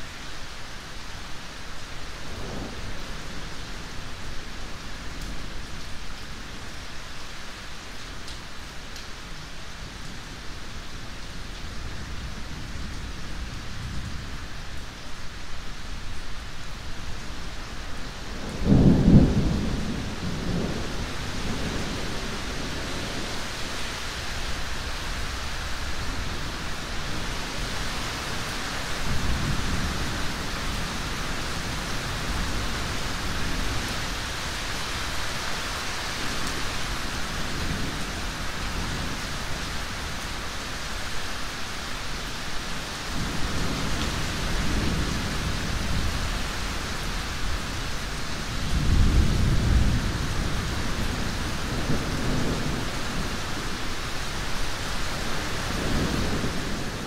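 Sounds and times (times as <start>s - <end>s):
steady rain: 0.0s - 57.0s
thunder rumbling: 18.3s - 23.5s, 48.5s - 53.9s.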